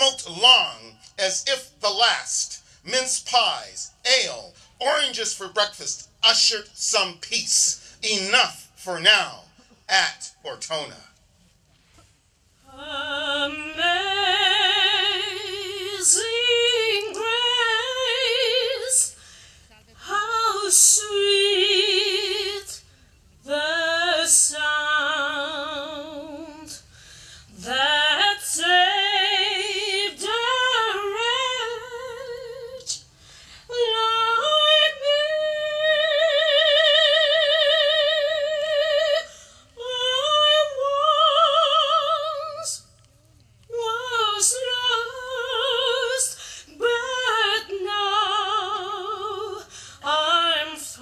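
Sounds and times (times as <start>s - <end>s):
woman singing classical solo: 12.7s - 19.1s, 20.0s - 22.8s, 27.6s - 32.8s, 33.7s - 42.8s, 43.7s - 51.0s.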